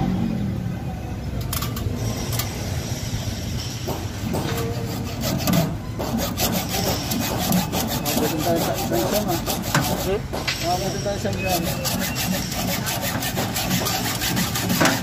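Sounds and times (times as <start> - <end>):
hacksaw rasping through cable: 4.3 - 10.4, 11.2 - 15.0.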